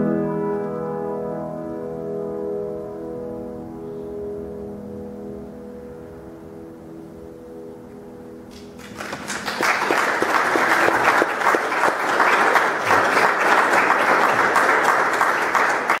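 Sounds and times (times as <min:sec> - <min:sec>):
grand piano chord ringing: 0:00.0 - 0:08.8
audience applauding: 0:08.5 - 0:16.0.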